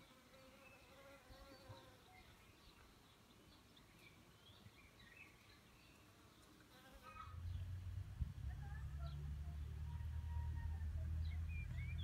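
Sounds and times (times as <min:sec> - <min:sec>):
distant bird chirps: 0:08.6 - 0:12.0.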